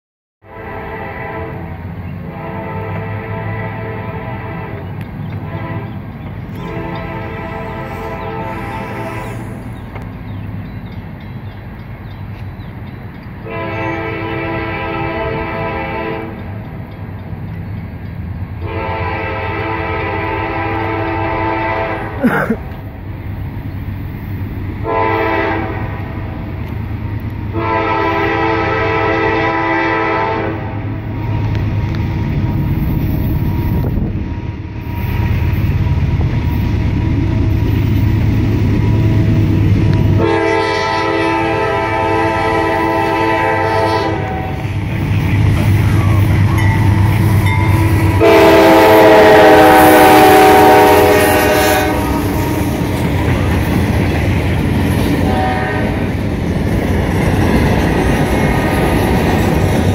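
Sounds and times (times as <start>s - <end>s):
locomotive horn blasts: 0.4s - 9.8s, 13.4s - 16.5s, 18.6s - 22.3s, 24.8s - 26.2s, 27.0s - 37.6s, 38.8s - 44.8s, 45.8s - 53.5s, 55.2s - 56.1s
train engine rumble: 0.5s - 59.9s.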